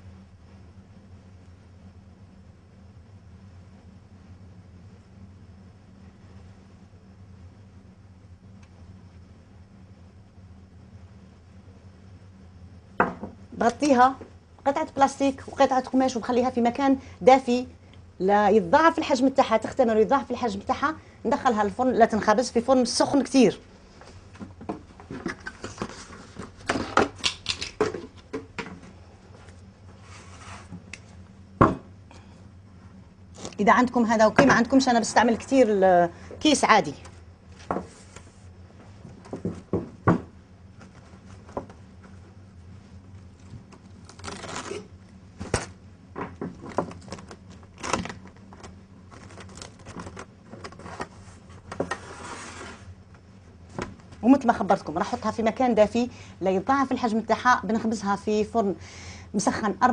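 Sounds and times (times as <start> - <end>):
cling film rustling: 43.2 - 45.8, 46.5 - 52.6.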